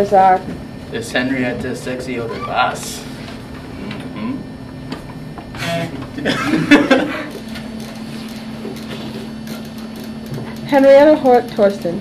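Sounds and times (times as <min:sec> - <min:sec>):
steady hum: 0:00.0 - 0:12.0
people chuckling: 0:06.1 - 0:07.5.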